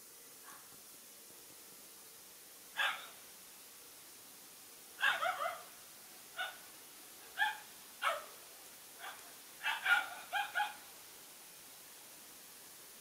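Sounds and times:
dogs yipping and barking: 2.8s - 3.1s, 5.0s - 5.7s, 7.4s - 8.3s, 9.0s - 10.8s.

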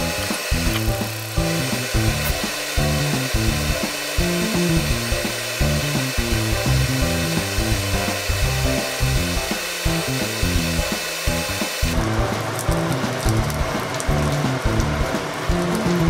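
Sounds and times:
background music: 0.0s - 16.0s
dumplings frying in oil: 0.1s - 16.0s.

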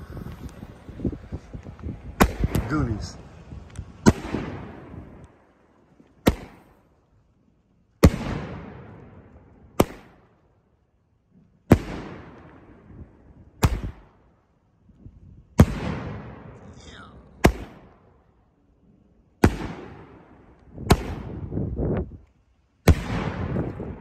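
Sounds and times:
firework bang echoing: 2.1s - 3.2s, 4.0s - 5.2s, 22.9s - 24.0s.

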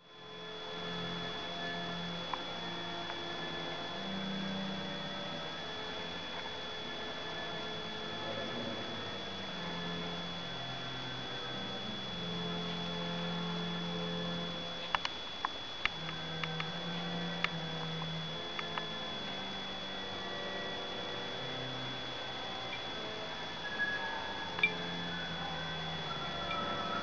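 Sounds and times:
electrical hum: 0.0s - 27.0s
thin high whine: 0.0s - 27.0s
sharp clicks: 14.9s - 16.8s.

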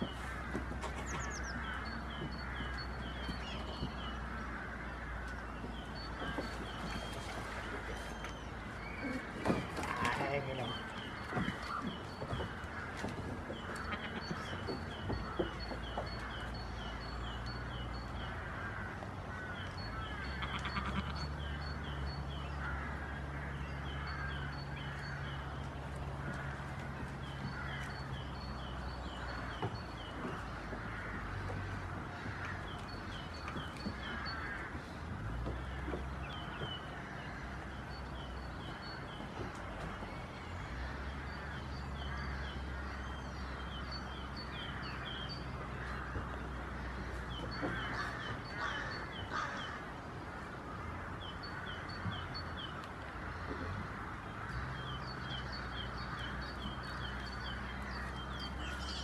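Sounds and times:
small bird chirping: 58.1s - 59.0s.

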